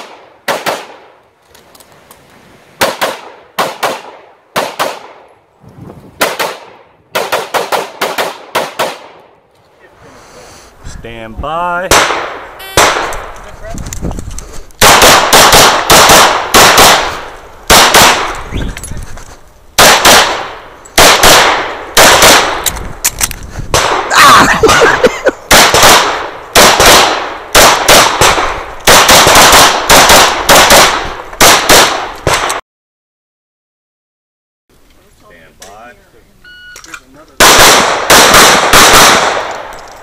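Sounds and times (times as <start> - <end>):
rapid pistol shots: 2.8 - 5.2, 6.2 - 9.2, 11.9 - 13.2, 14.8 - 18.4, 19.8 - 22.6, 25.5 - 32.6, 37.4 - 39.7.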